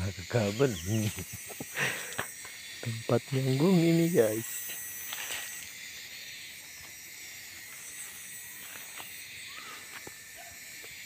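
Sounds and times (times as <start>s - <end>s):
insects hissing: 0.0s - 11.0s
faint bird chirp: 9.4s - 10.6s.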